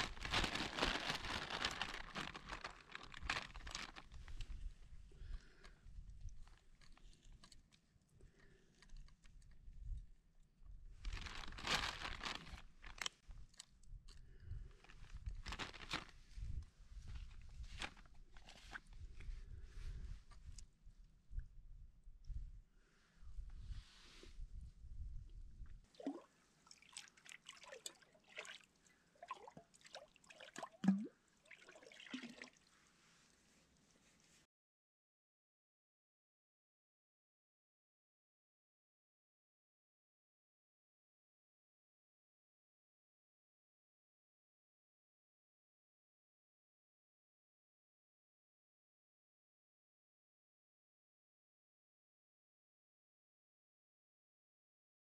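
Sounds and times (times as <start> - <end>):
food crunching and crinkling: 0.0 - 4.2, 11.1 - 13.8
water gurgling and dripping: 29.2 - 32.6.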